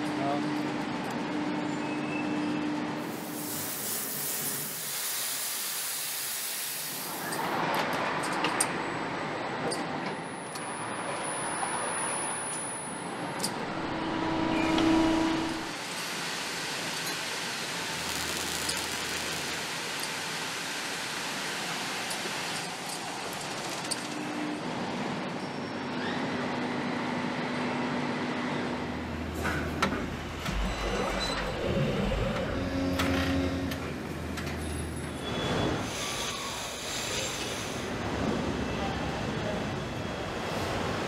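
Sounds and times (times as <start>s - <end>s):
steady hiss: 17.7s - 19.9s
mechanical din: 30.0s - 34.0s.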